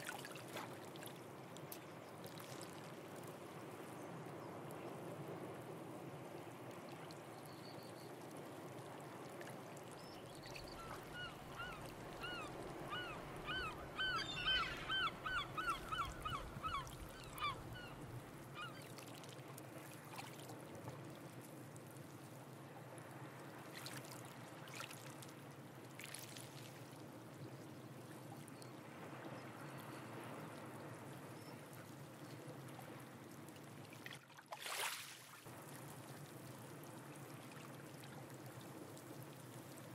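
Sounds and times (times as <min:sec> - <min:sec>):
sea wash: 0:00.0 - 0:39.9
bird calling repeated notes: 0:11.2 - 0:18.0.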